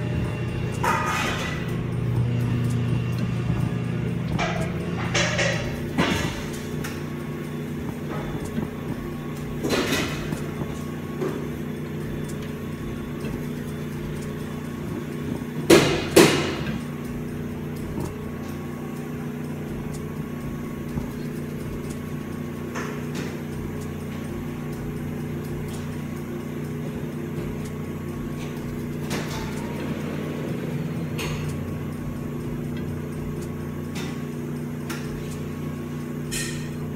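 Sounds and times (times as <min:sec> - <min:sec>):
kitchen machinery humming: 0:00.0 - 0:36.9
sharp knocks: 0:04.3 - 0:07.0, 0:15.7 - 0:17.2.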